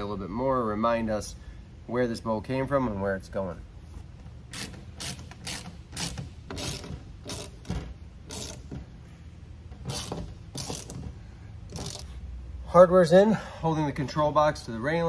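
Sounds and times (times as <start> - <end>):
socket ratchet clicking: 4.5 - 8.7, 9.8 - 11.1, 11.7 - 12.1.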